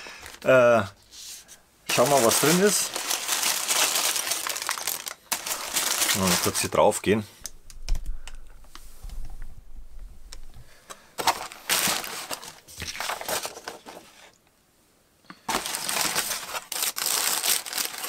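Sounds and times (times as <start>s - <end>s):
paper crinkling and rustling: 1.3s - 6.9s, 11.2s - 14.4s, 15.5s - 18.0s.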